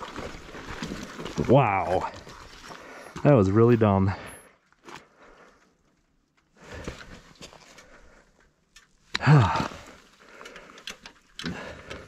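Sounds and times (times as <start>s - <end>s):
person groaning: 9.2s - 9.8s
person breathing hard and sighing: 9.2s - 12.0s.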